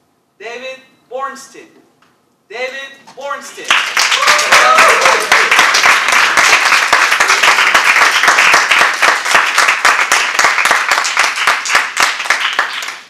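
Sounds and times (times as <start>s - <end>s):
small audience applauding: 3.6s - 13.0s.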